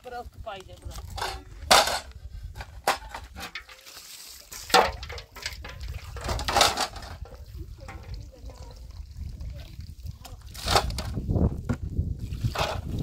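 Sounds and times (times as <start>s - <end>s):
metal pots and plates clanking: 1.0s - 3.9s, 4.7s - 8.2s.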